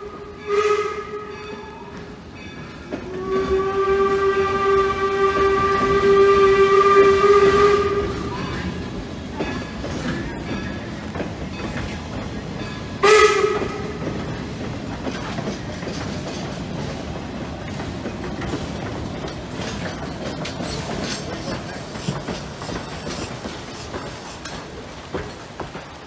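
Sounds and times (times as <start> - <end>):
steam train running past: 0.0 - 26.0
wheels clicking on rails: 0.0 - 26.0.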